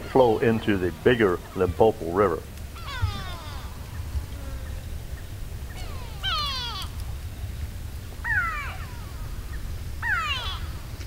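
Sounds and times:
animal falling cry: 0:02.8 - 0:04.3, 0:05.8 - 0:07.0, 0:08.2 - 0:10.9.

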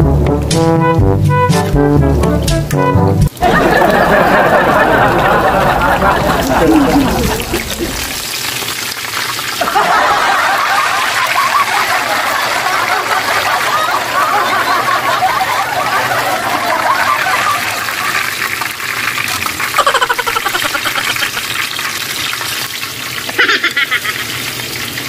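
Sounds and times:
fish sizzling in oil: 0:08.0 - 0:09.7, 0:20.5 - 0:25.0.

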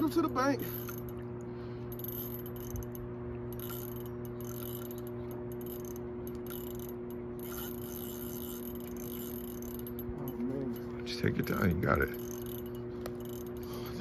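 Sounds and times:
fishing reel ticking: 0:00.0 - 0:14.0
steady low hum: 0:00.0 - 0:14.0.

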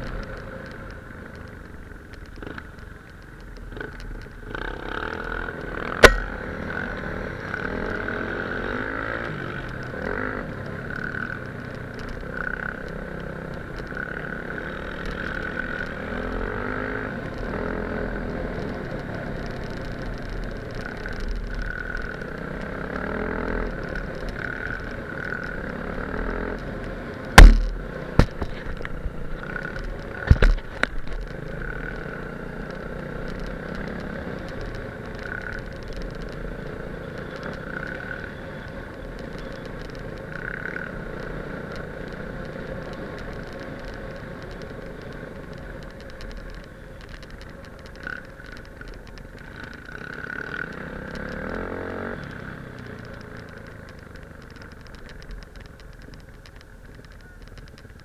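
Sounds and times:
motorcycle engine running: 0:00.0 - 0:58.0
wind and road rush: 0:00.0 - 0:58.0
sharp knocks: 0:27.4 - 0:28.5.

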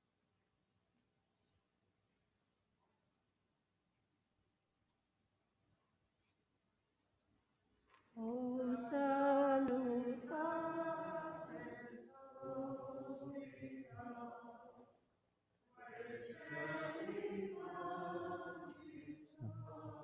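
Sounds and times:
unaccompanied chant singing: 0:08.2 - 0:15.0, 0:15.7 - 0:20.0.

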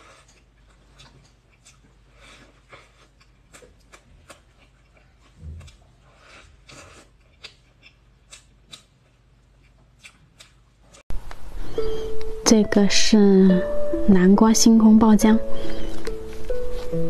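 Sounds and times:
wet lip smacks: 0:07.4 - 0:10.6.

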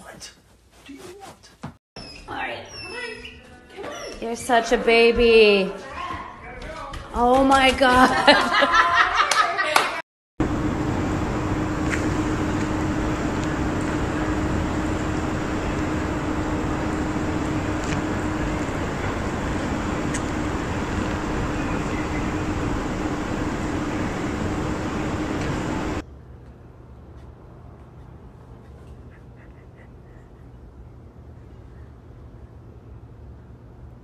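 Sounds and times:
constant rushing noise: 0:10.4 - 0:26.0
low steady hum: 0:10.4 - 0:34.0.

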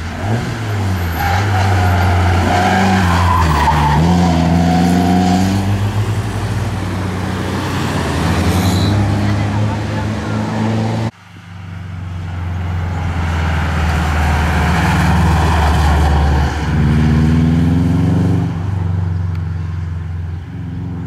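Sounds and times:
rally car engine revving: 0:00.0 - 0:11.2, 0:11.9 - 0:19.7
rally car accelerating hard: 0:12.8 - 0:18.7.

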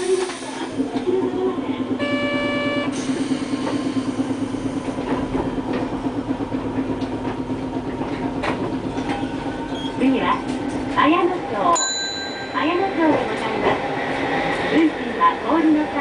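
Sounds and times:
streetcar hum: 0:00.0 - 0:16.0
wheels rumbling on rails: 0:00.0 - 0:16.0.

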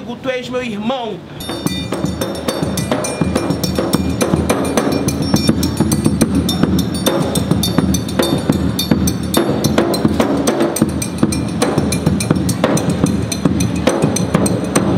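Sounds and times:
instrumental music with busy percussion: 0:01.4 - 0:14.9.

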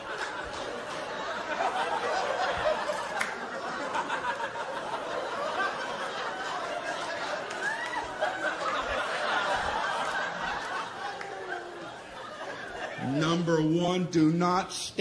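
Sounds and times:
large audience laughing: 0:00.0 - 0:13.7.

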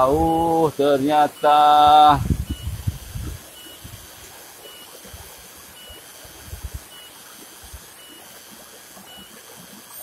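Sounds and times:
stream water rushing: 0:00.0 - 0:10.0.

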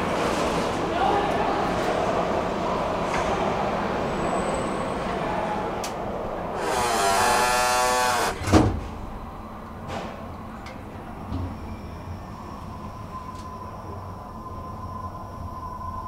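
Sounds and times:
elevator motor whine: 0:06.5 - 0:08.4.

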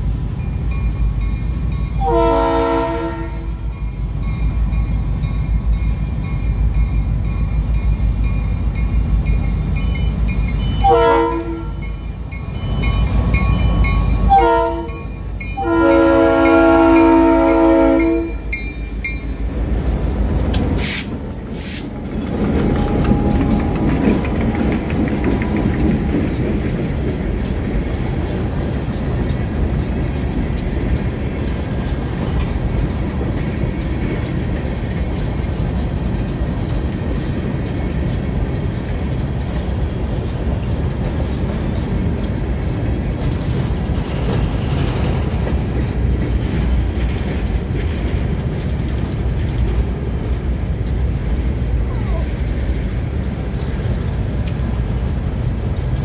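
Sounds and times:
freight train rumbling past: 0:00.0 - 0:56.0
train wheels clicking over rails: 0:00.0 - 0:56.0
sharp clacks: 0:19.7 - 0:51.8.

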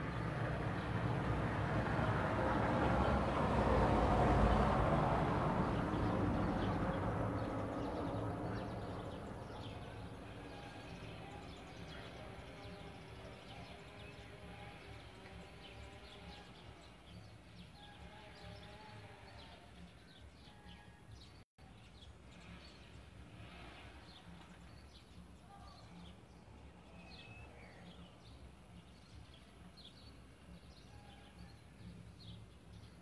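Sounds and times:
passing vehicle rumble: 0:00.0 - 0:20.1, 0:22.2 - 0:30.6.

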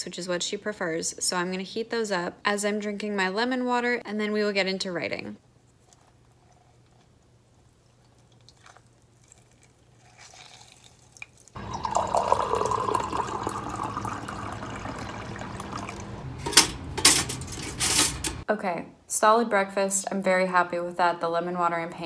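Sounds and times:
juice dripping into mug: 0:08.1 - 0:16.2
water pouring into mug: 0:08.6 - 0:16.3.

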